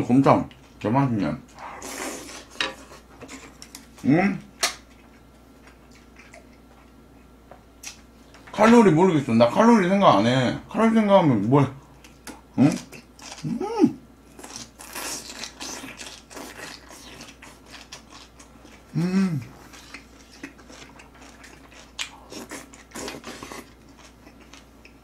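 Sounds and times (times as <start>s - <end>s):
slurping noodles: 1.6s - 2.6s
wet chewing: 4.8s - 7.0s, 14.4s - 19.0s, 19.6s - 25.0s
person humming mm: 13.4s - 14.0s, 18.9s - 19.6s.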